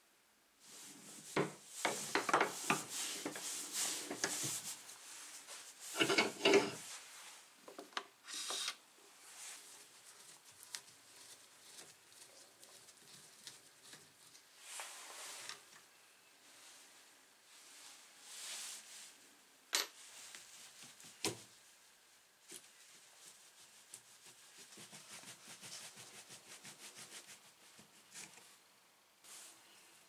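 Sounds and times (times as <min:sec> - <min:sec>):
light taps and scrapes: 0:05.9 - 0:07.0
tools clattering: 0:06.0 - 0:06.8.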